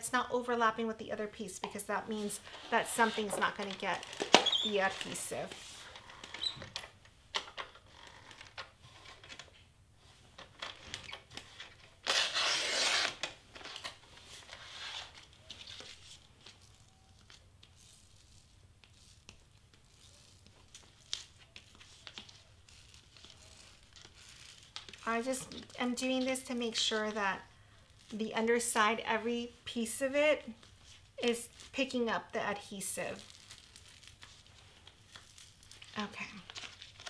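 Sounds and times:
film and cardstock crinkling: 0:01.8 - 0:09.7, 0:10.3 - 0:29.0, 0:29.8 - 0:37.0
plastic squeegee rubbing film: 0:02.0 - 0:27.2, 0:30.0 - 0:37.0
loud tearing rasp: 0:12.0 - 0:13.3.

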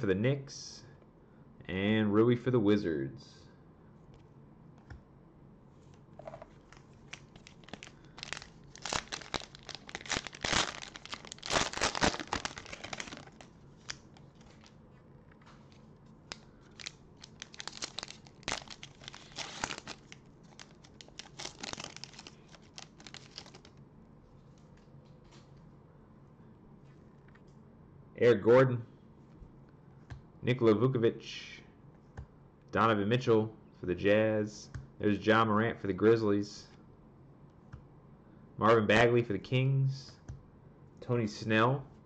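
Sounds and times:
plastic wrapper crinkling and tearing: 0:06.6 - 0:14.8, 0:15.7 - 0:23.8.

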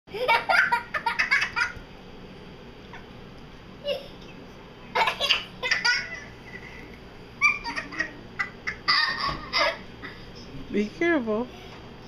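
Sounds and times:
child laughing: 0:00.1 - 0:01.8, 0:03.8 - 0:04.3, 0:04.9 - 0:10.2.

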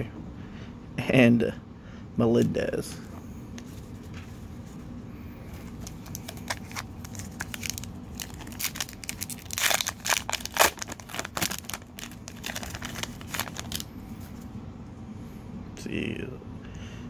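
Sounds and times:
wrapper tearing and crinkling: 0:05.8 - 0:13.9.

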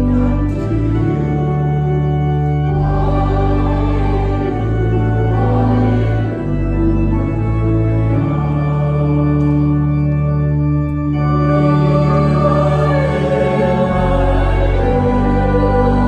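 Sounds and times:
church organ chords: 0:00.0 - 0:16.0
voices singing: 0:02.5 - 0:07.2, 0:11.3 - 0:16.0.

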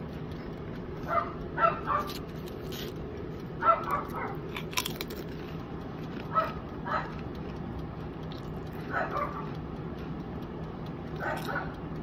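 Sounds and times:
steady low hum: 0:00.0 - 0:12.0
potato chip crunching: 0:02.0 - 0:03.1, 0:04.0 - 0:06.3.

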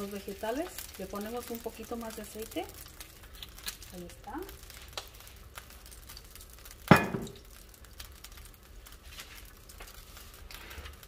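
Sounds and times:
cooking oil crackling: 0:00.0 - 0:11.0
frying pan clink: 0:06.9 - 0:07.4.

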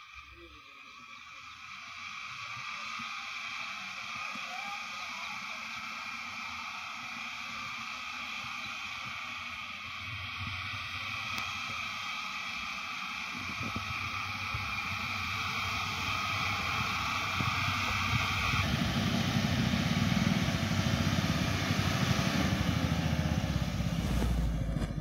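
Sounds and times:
diesel engine revving hard: 0:18.0 - 0:25.0
tyres churning dirt: 0:18.4 - 0:25.0.

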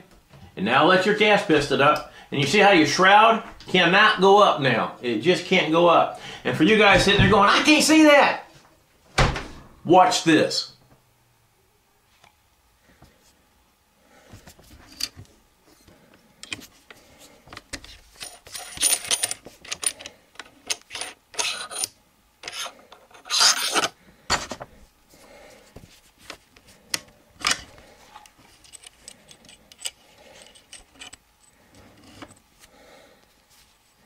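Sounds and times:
metal gun parts scraping and clicking: 0:14.7 - 0:15.2, 0:17.5 - 0:24.0, 0:27.4 - 0:32.5.

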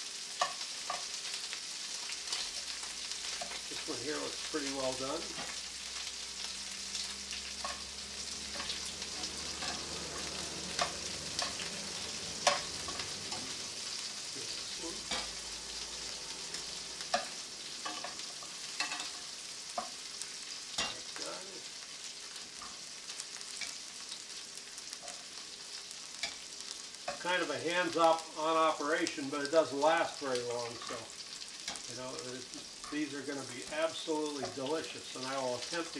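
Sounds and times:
prawns sizzling in pan: 0:00.0 - 0:35.9
tongs clicking against pan: 0:09.6 - 0:11.7, 0:12.4 - 0:13.5, 0:23.5 - 0:23.8, 0:26.2 - 0:26.4.

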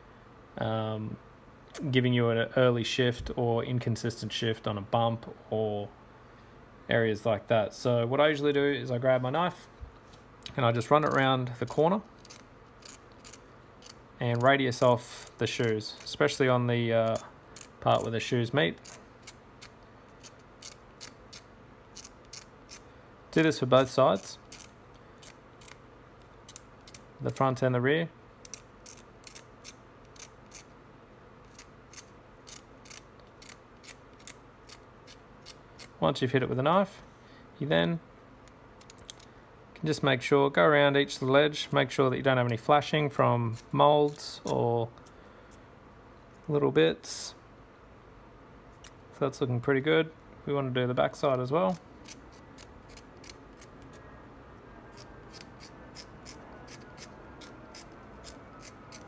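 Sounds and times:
knife blade scraping: 0:12.2 - 0:16.2, 0:17.0 - 0:22.8, 0:23.8 - 0:25.8, 0:28.4 - 0:30.7, 0:31.4 - 0:36.0, 0:51.7 - 0:54.0, 0:54.9 - 0:59.0
knife blade scraping metal: 0:12.2 - 0:16.2, 0:18.7 - 0:21.4, 0:54.9 - 0:59.0.

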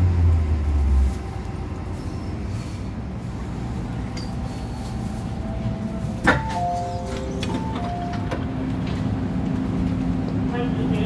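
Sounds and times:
train car rumble: 0:00.0 - 0:11.0
train drive hum: 0:00.0 - 0:11.0.

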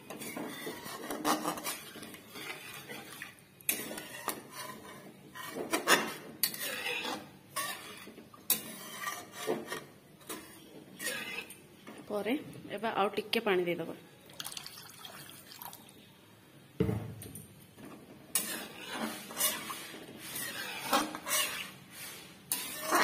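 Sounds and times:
spatula scraping curry in pan: 0:00.0 - 0:12.0, 0:17.8 - 0:23.0.

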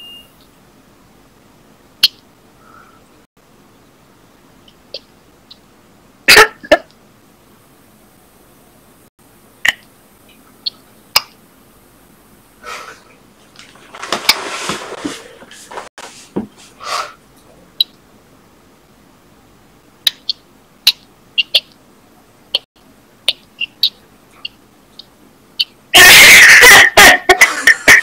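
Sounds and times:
noisy rustle: 0:12.8 - 0:16.8
sharp clicks: 0:20.0 - 0:21.8
cough-like burst: 0:26.0 - 0:28.0.

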